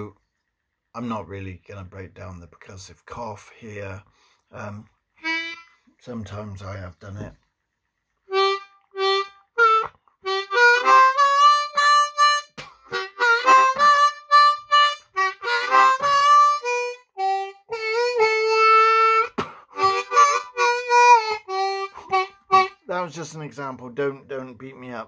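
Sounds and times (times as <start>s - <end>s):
harmonica playing a quick tune: 5.2s - 5.9s, 8.3s - 23.2s.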